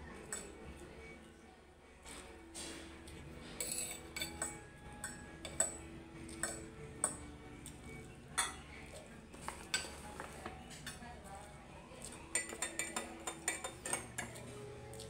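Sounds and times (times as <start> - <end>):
cutlery clinking on a ceramic plate: 3.5 - 7.3, 8.3 - 8.7, 12.3 - 14.5.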